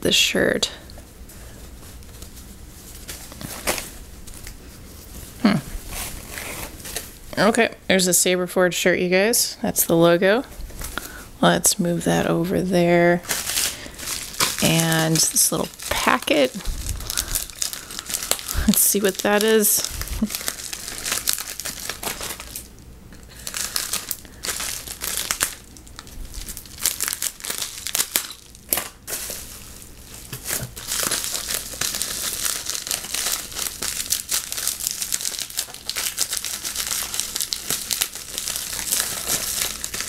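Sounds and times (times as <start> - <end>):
plastic packet crinkling: 13.2 - 40.0.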